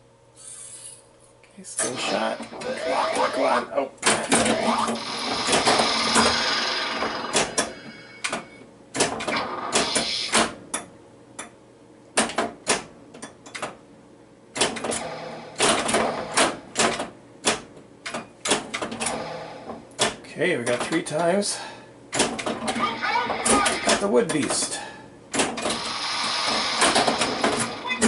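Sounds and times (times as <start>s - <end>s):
pinball flippers and bumpers clacking: 4.0s - 10.6s, 14.6s - 21.0s, 25.4s - 28.0s.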